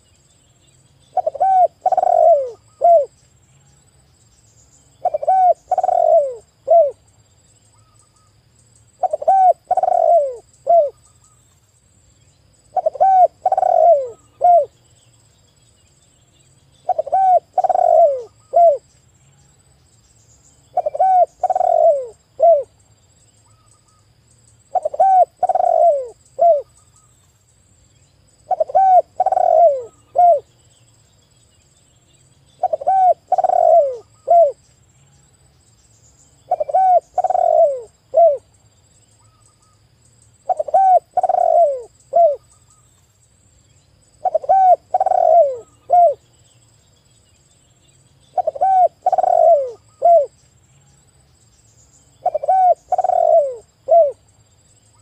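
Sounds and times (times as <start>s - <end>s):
dove cooing: 1.1s - 3.1s, 5.0s - 7.0s, 9.0s - 11.0s, 12.7s - 14.8s, 16.8s - 18.8s, 20.7s - 22.7s, 24.7s - 26.7s, 28.4s - 30.5s, 32.6s - 34.6s, 36.5s - 38.5s, 40.5s - 42.4s, 44.2s - 46.2s, 48.3s - 50.4s, 52.2s - 54.2s.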